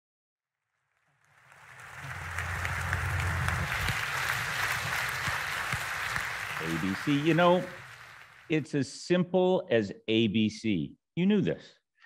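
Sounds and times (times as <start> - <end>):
audience applauding: 1.2 - 8.7
low hum: 1.6 - 5.7.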